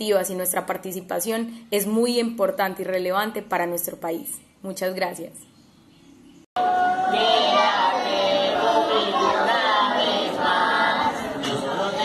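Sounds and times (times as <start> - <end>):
children singing unaccompanied: 6.6 - 12.0.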